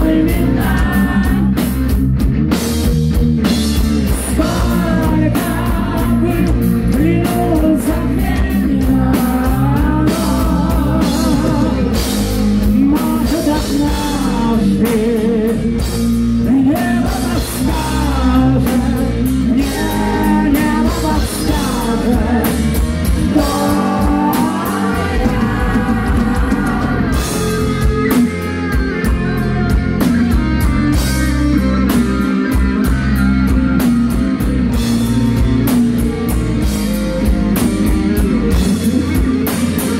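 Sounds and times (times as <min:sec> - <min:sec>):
man singing: 0:00.0 - 0:01.6, 0:04.1 - 0:28.1
bass guitar: 0:00.0 - 0:39.9
distorted electric guitars: 0:00.0 - 0:39.9
drum kit: 0:00.0 - 0:39.9.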